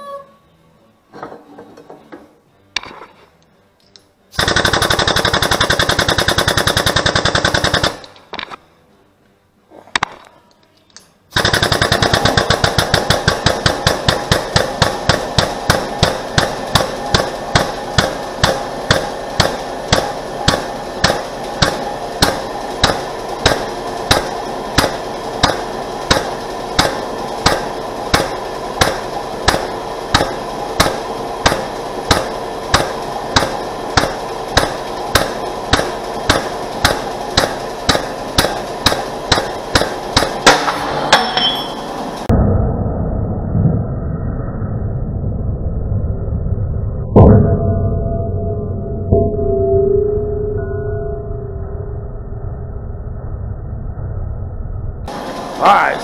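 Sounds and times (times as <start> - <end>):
hydraulic jack pumping: 11.4 - 41.9.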